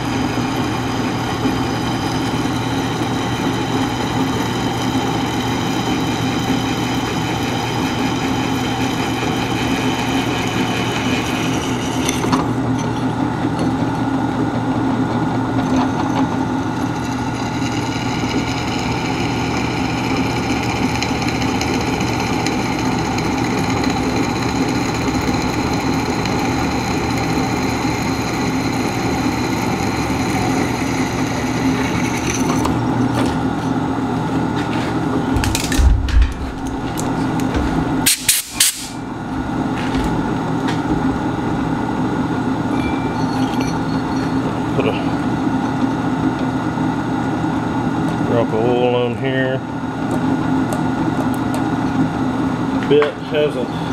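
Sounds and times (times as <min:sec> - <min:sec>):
drill press motor hum: 0:00.0 - 0:47.4
high ringing tone of bit cutting steel: 0:42.7 - 0:45.3.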